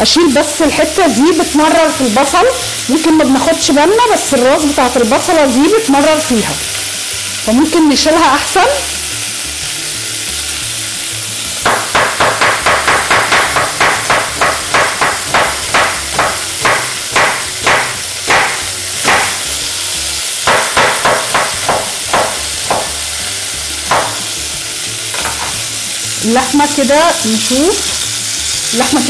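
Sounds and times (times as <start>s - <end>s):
meat sizzling in hot oil: 0.0s - 29.0s
knife chopping on wooden board: 11.6s - 19.5s, 20.4s - 23.0s, 23.9s - 24.3s.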